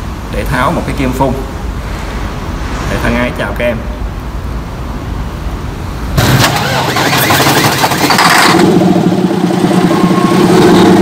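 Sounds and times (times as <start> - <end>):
engine starting and running: 6.1 - 11.0.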